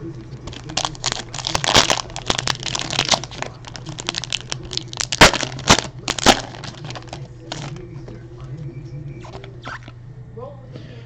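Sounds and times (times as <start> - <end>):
wrapper crinkling torn open: 0.4 - 7.8
sharp wrapper cracks: 0.5 - 7.8.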